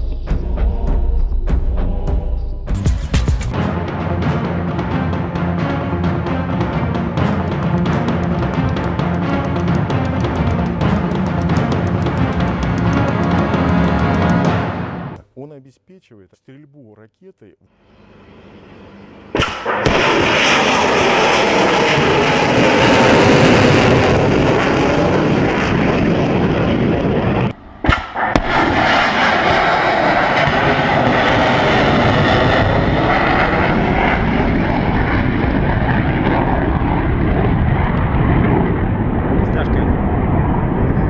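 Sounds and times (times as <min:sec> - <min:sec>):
rocket roar: 0:17.9 - 0:41.0
sharp crack: 0:19.3 - 0:22.1, 0:27.8 - 0:31.2
missile launch blast: 0:19.3 - 0:40.9.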